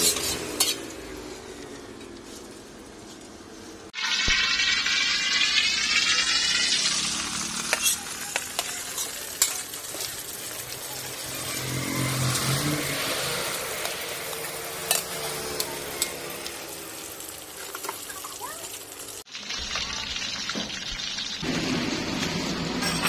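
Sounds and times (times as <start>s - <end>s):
metal utensils clicking on wok: 0.0s - 1.0s, 7.6s - 19.0s
oil sizzling: 3.6s - 23.0s.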